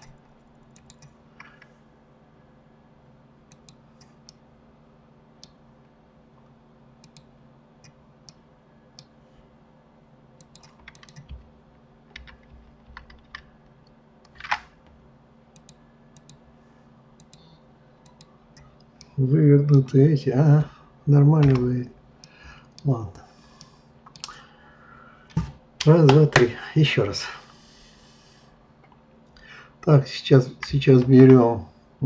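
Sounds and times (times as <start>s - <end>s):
keyboard and mouse clicks: 0.0s - 1.7s, 3.5s - 4.4s, 7.0s - 8.4s, 10.4s - 11.5s, 12.2s - 13.5s, 15.6s - 16.4s, 17.2s - 19.2s, 21.4s - 21.7s
low steady hum: 0.0s - 32.0s.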